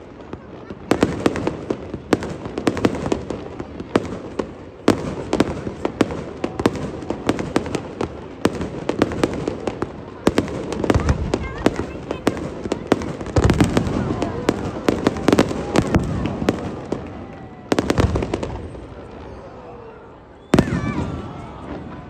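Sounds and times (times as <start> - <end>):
fireworks crackle: 0.0 - 22.0.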